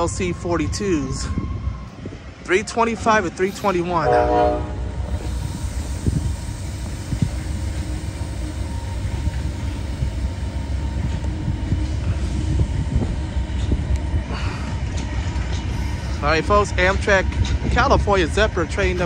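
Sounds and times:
diesel locomotive idling: 0.0s - 19.0s.

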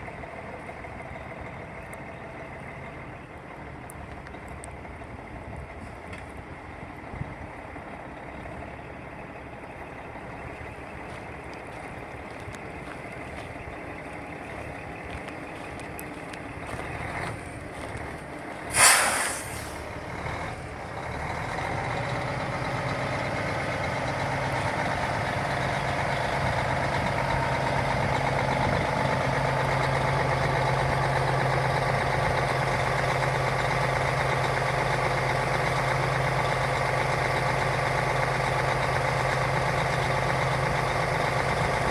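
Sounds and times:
truck engine idling: 0.0s - 41.9s
air brake hiss: 18.7s - 19.9s.

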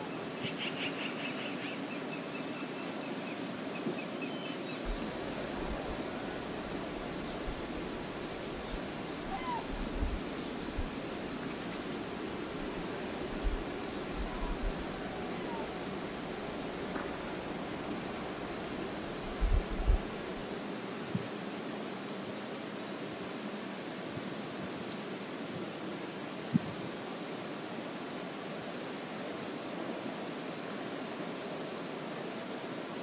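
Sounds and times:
river water rushing: 4.8s - 23.8s.

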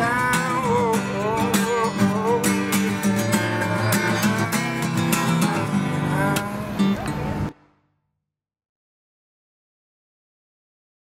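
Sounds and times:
acoustic guitar strumming: 0.0s - 7.8s.

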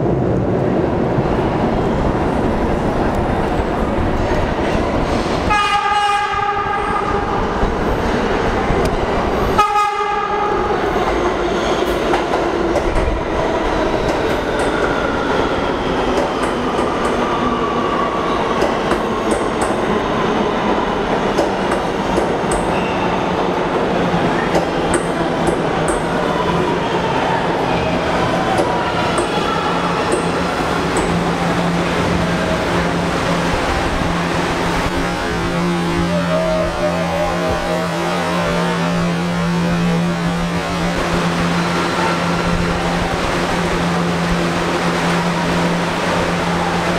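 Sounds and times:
falling train whine: 0.0s - 46.9s
train rumble: 0.0s - 46.9s
train horn: 5.5s - 7.4s, 9.5s - 10.7s, 35.1s - 40.6s.

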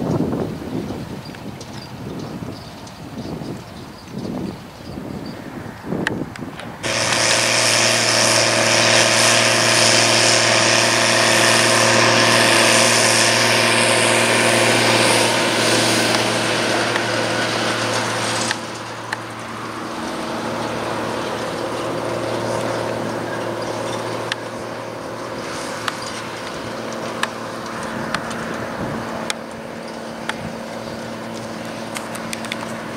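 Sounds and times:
tractor diesel engine running: 0.0s - 32.9s
loud rushing hiss: 6.7s - 32.9s.

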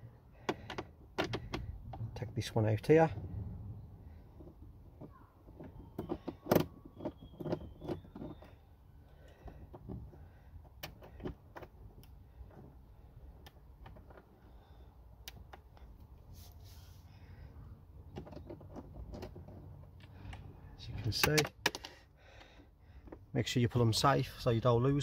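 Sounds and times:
faint squeak: 5.0s - 9.3s.

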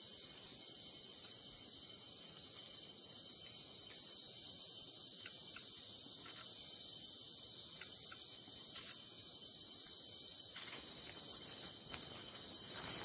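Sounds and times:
high insect drone: 0.0s - 13.0s
faint ticks: 5.2s - 6.5s, 7.7s - 9.0s
thin piercing whine: 8.0s - 13.0s
soft rustling: 10.6s - 13.0s.

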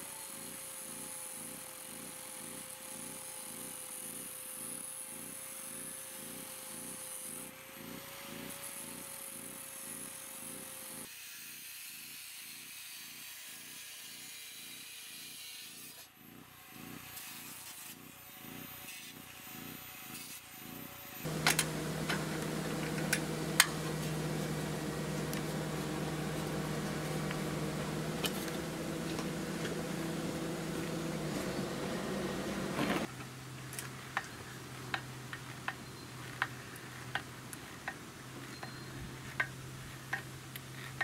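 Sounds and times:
sharp clicks and taps: 21.3s - 31.4s
angle grinder on steel sheet: 21.3s - 33.1s
steady machine hum: 21.3s - 33.1s.

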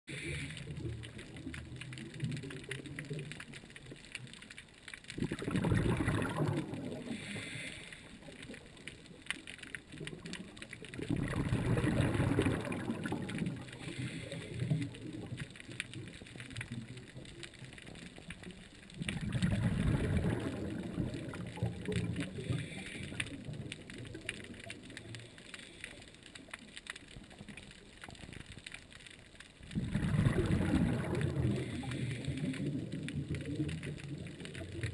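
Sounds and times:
faint crackle of clicks: 0.1s - 34.9s
diver exhaling bubbles underwater: 5.2s - 7.7s, 10.9s - 15.4s, 19.0s - 25.0s, 29.7s - 34.9s.

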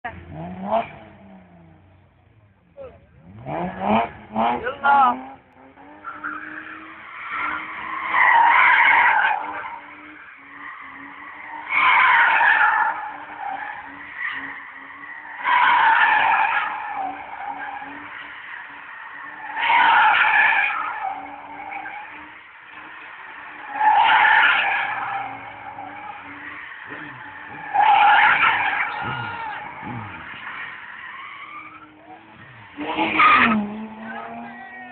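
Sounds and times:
car engine: 0.0s - 34.9s
tyres squealing: 23.5s - 34.9s.

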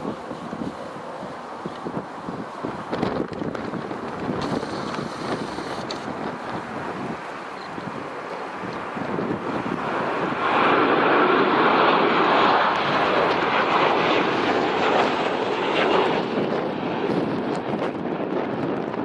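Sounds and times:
jet engines whining: 0.0s - 19.0s.

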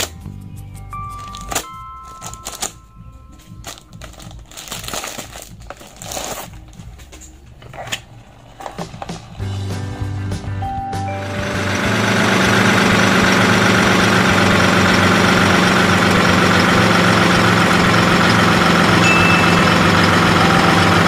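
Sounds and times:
faint background music: 0.0s - 11.7s
plastic and cardboard crinkling: 1.0s - 9.4s.

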